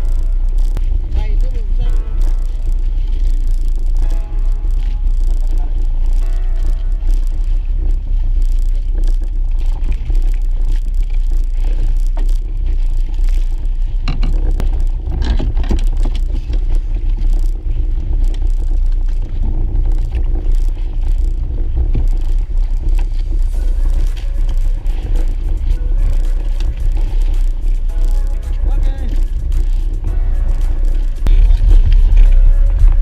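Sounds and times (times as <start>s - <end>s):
boat low rumble: 0.0s - 33.0s
knocks and scrapes of fishing gear: 8.7s - 17.5s.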